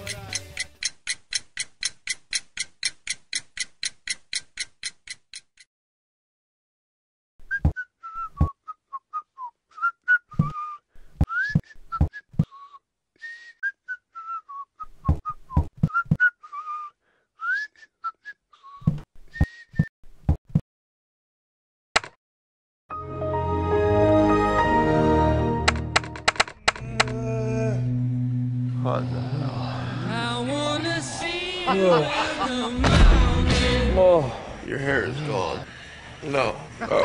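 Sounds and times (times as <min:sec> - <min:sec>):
person whistling a tune: 0:07.5 - 0:19.9
low thumps: 0:32.8 - 0:34.3.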